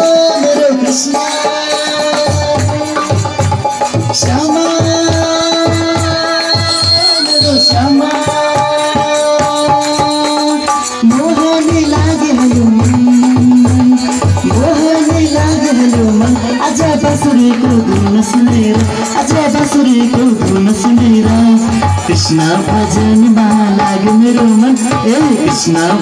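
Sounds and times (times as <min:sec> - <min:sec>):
hand-drum beat: 0:00.0 - 0:26.0
held instrumental melody: 0:00.0 - 0:26.0
rattling percussion: 0:00.0 - 0:26.0.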